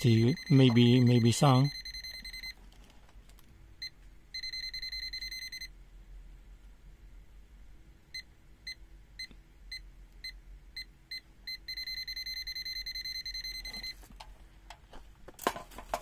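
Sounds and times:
voltage detector beeping: 0:00.0 - 0:02.6, 0:04.4 - 0:05.7, 0:10.2 - 0:14.0.

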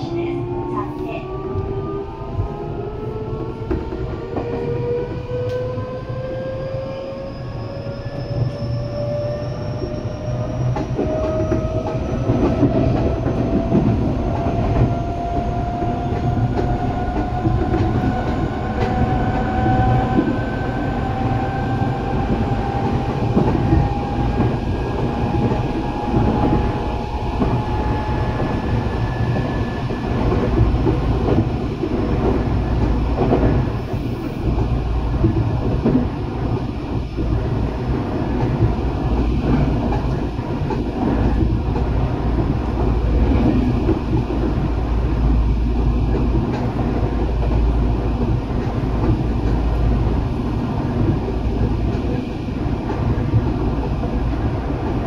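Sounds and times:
wheels rumbling on rail: 0:00.0 - 0:55.0.

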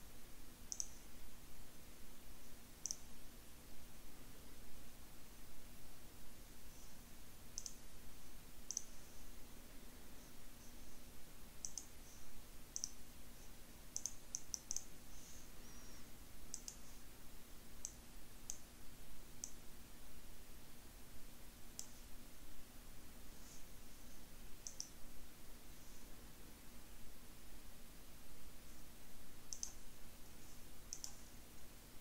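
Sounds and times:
faint steady hum: 0:00.0 - 0:32.0
computer mouse button clicking: 0:00.7 - 0:01.0, 0:07.6 - 0:07.8, 0:08.7 - 0:08.9, 0:11.6 - 0:11.9, 0:14.0 - 0:14.9, 0:16.5 - 0:16.8, 0:24.6 - 0:24.9, 0:29.5 - 0:29.8, 0:30.9 - 0:31.2.

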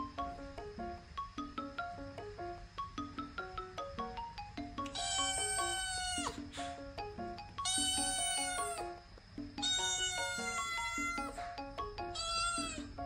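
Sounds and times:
light mallet background music: 0:00.0 - 0:13.0
kitten meowing: 0:04.9 - 0:06.4, 0:07.6 - 0:08.9, 0:09.6 - 0:11.4, 0:12.1 - 0:13.0.

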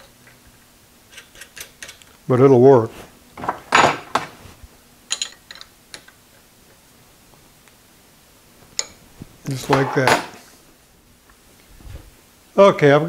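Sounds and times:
metal clinking: 0:05.1 - 0:06.1.

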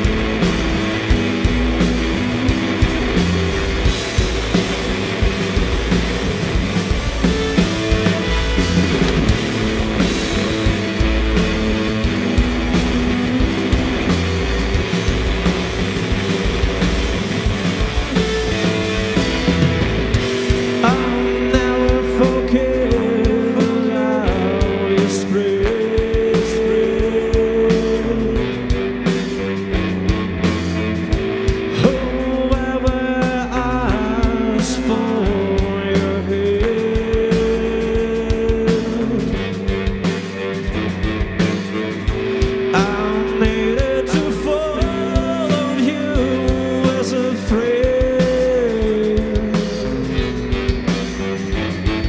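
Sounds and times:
rock band playing: 0:00.0 - 0:52.0
man singing into microphone: 0:20.8 - 0:28.6, 0:31.7 - 0:39.5, 0:42.7 - 0:50.2.

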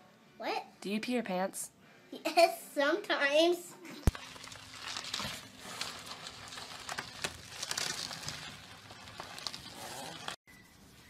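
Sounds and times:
bubble wrap crinkling: 0:04.0 - 0:10.4.

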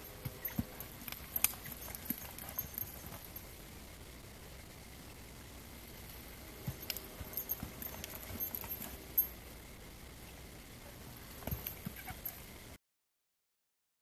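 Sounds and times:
horse hooves in soft dirt: 0:00.0 - 0:03.6, 0:05.8 - 0:09.4, 0:10.9 - 0:12.6.

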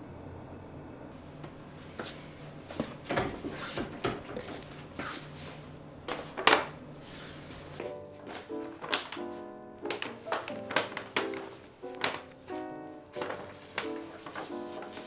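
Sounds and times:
paper shopping bag rustling: 0:06.2 - 0:15.0
footsteps: 0:07.1 - 0:15.0
soft background music: 0:07.7 - 0:15.0.

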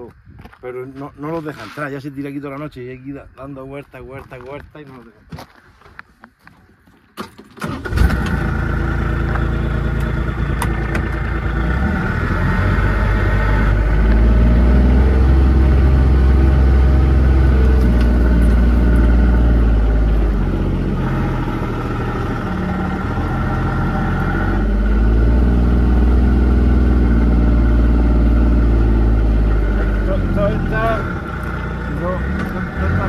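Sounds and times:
vehicle engine running: 0:07.7 - 0:33.0.

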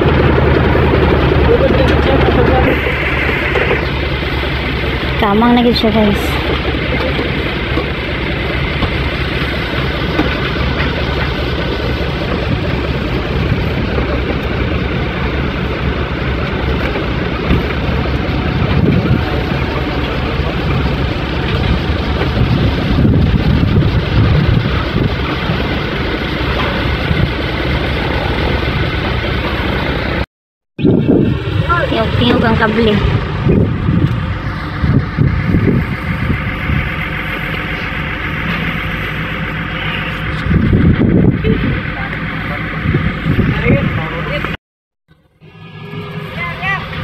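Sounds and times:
diesel engine running: 0:00.0 - 0:47.0.

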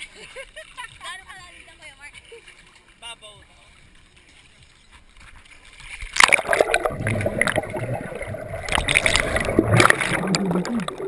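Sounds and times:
faint pool sounds: 0:00.0 - 0:11.0
water splashing and churning: 0:00.0 - 0:11.0
bubbles clicking: 0:06.1 - 0:11.0
underwater rumble: 0:06.2 - 0:11.0.

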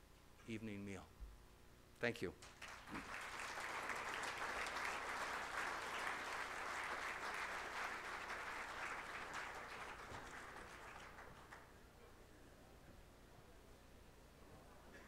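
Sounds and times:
audience applauding: 0:02.4 - 0:11.8.

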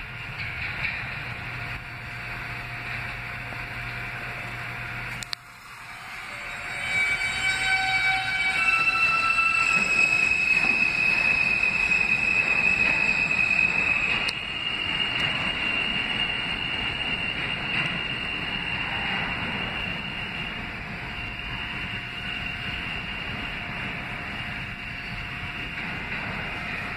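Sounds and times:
train wheels rumbling on rail: 0:00.0 - 0:26.9
stepped whining tones: 0:04.9 - 0:26.9
high-pitched wheel squeal: 0:05.6 - 0:26.9.

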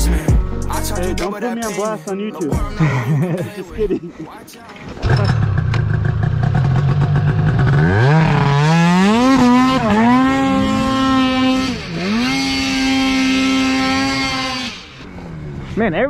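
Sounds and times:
snowmobile engine revving: 0:05.0 - 0:16.0.

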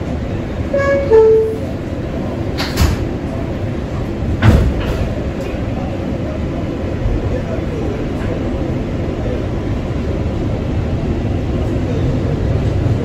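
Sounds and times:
train hum: 0:00.0 - 0:13.0
sliding doors thudding shut: 0:04.4 - 0:05.2.

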